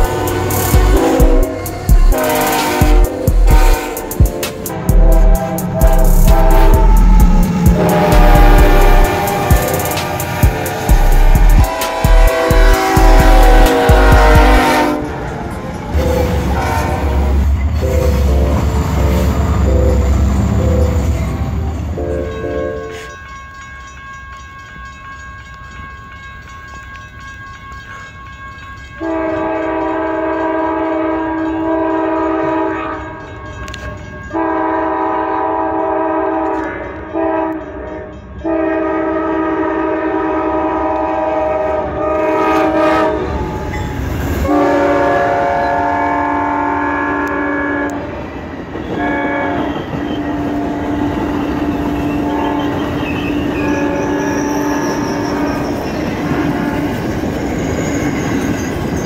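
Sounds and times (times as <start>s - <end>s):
locomotive air horn blasts: 0.0s - 15.2s, 16.0s - 20.2s, 29.0s - 37.8s, 38.4s - 43.7s, 44.4s - 48.1s, 48.8s - 56.9s
diesel locomotive rumbling: 0.0s - 24.0s, 24.8s - 59.0s
passing train rumble: 0.0s - 59.0s.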